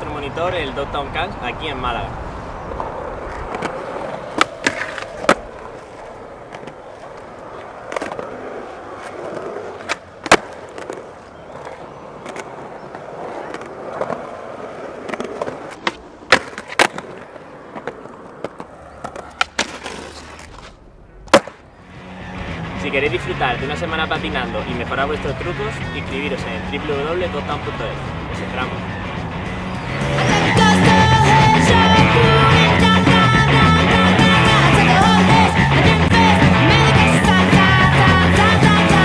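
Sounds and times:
skateboard wheels rolling on concrete: 0.0s - 39.0s
skateboard wooden clacks: 2.7s - 21.6s.

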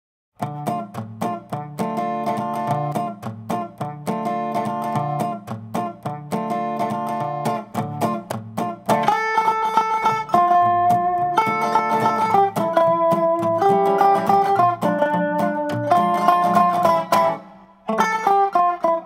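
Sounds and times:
acoustic guitar chords: 0.4s - 19.0s
held melody line: 0.4s - 19.0s.

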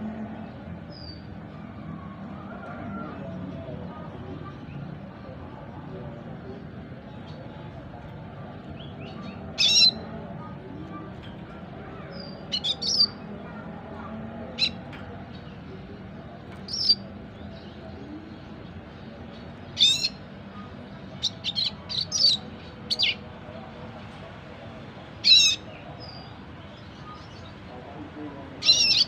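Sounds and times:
bird chirping and twittering: 8.5s - 10.1s, 10.9s - 13.7s, 14.5s - 23.4s, 25.0s - 29.0s.

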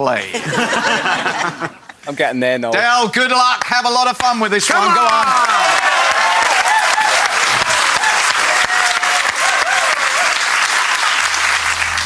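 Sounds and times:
audience applauding: 4.6s - 12.0s
voices cheering: 4.6s - 12.0s
low music bed: 10.8s - 12.0s.

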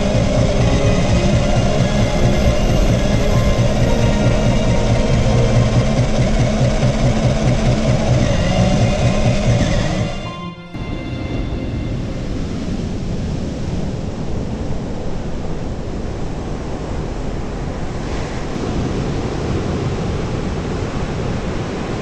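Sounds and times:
wind rumbling on microphone: 0.0s - 22.0s
surf washing onto beach: 10.9s - 22.0s.

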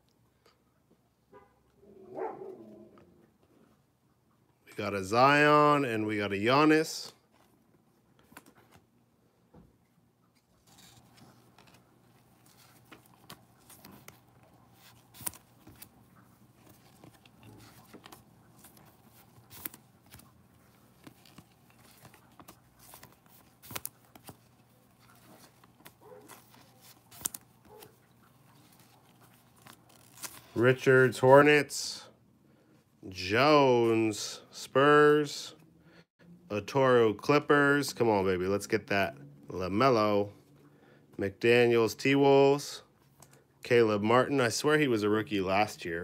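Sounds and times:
trading cards rustling and clicking: 7.3s - 9.0s, 10.4s - 31.4s.

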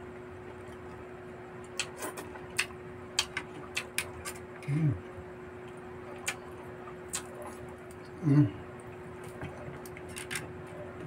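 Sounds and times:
person humming mm: 4.6s - 5.0s, 8.2s - 8.6s
person chewing: 6.1s - 6.5s, 7.1s - 8.5s.

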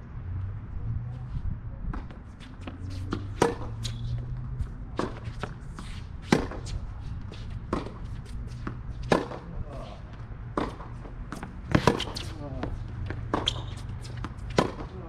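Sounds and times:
ball bouncing and hit faintly: 1.9s - 5.6s, 6.3s - 6.8s, 8.6s - 9.5s, 10.5s - 14.9s
tennis racket striking ball: 2.6s - 9.5s, 10.5s - 14.9s.

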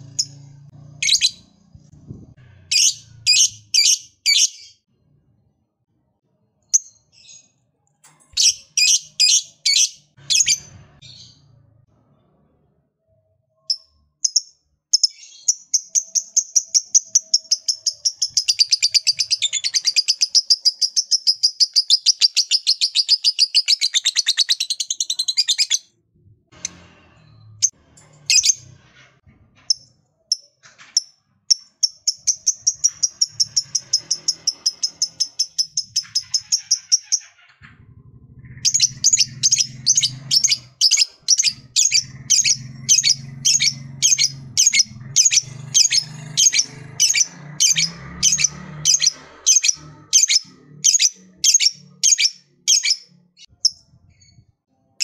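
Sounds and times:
lovebird chattering trill: 38.6s - 53.0s.

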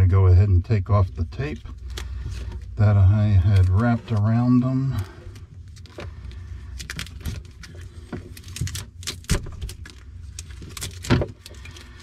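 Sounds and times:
tape peeling in crackling rips: 6.7s - 12.0s.

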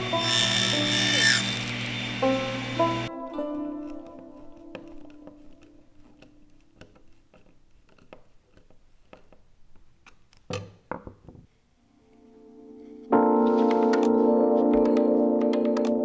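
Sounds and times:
background music: 0.0s - 6.8s, 11.8s - 16.0s
screwdriver clicks and creaks: 3.8s - 10.6s.

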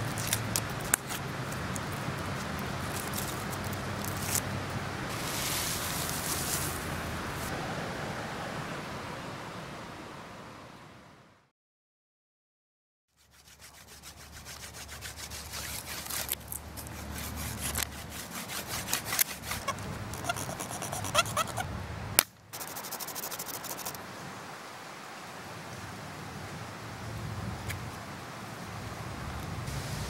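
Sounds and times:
stone scraping wooden spindle: 13.2s - 21.7s, 22.6s - 24.0s.

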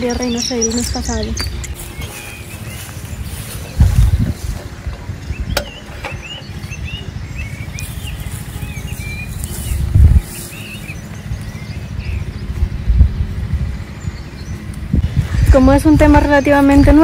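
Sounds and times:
small birds chirping: 0.0s - 17.0s
wind buffeting microphone: 0.0s - 17.0s.

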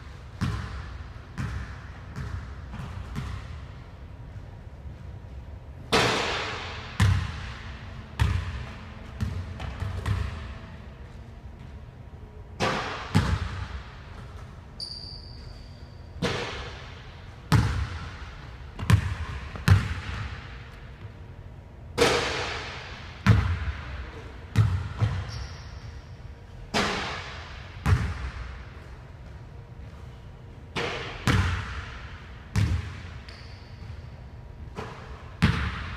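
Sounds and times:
basketball bouncing on wooden floor: 0.4s - 0.8s, 8.2s - 8.6s, 17.5s - 18.1s, 18.8s - 20.3s, 24.6s - 25.4s, 32.5s - 33.0s.

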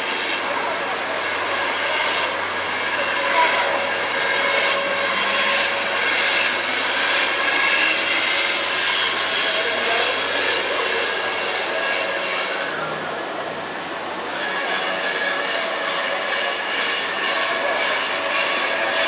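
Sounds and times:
cutter hissing through foam: 0.0s - 13.2s
machine whine: 0.0s - 19.0s.

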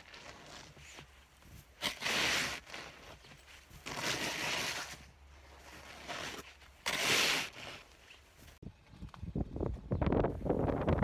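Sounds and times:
snow scraping off roof: 0.0s - 8.2s.

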